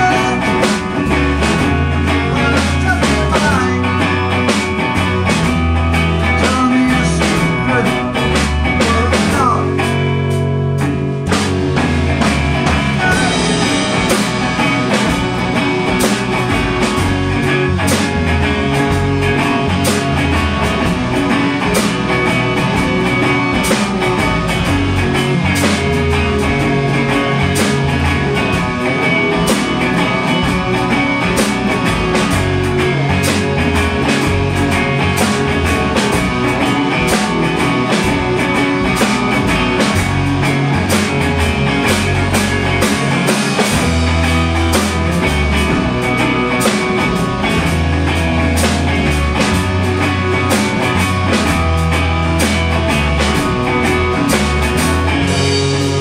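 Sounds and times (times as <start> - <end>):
drum kit beat: 0.0 - 56.0
electric bass: 0.0 - 56.0
electric guitars: 0.0 - 56.0
guitar bend: 0.0 - 56.0.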